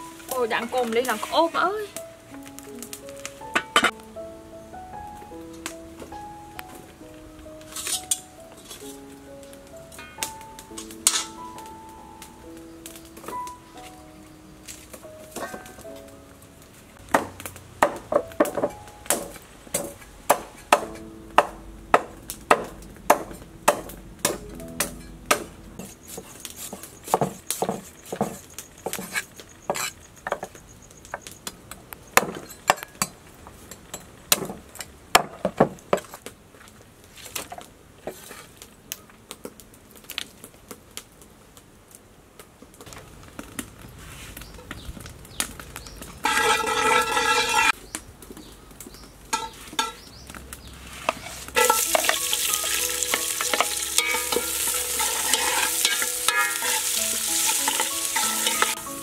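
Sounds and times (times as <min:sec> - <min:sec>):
cleaver chopping meat on wood: 0:17.1 - 0:25.5.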